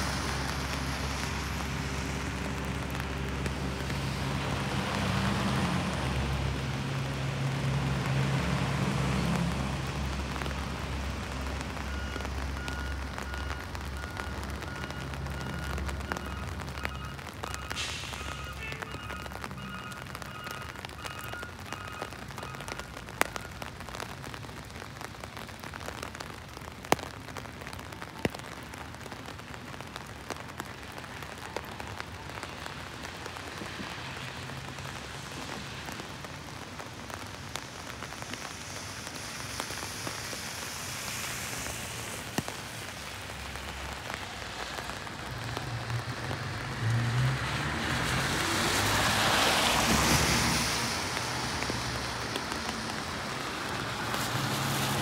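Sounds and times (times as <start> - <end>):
rain falling on pavement: 0.0 - 55.0
vehicle passing on wet road: 0.0 - 55.0
sharp drips: 9.3 - 24.5.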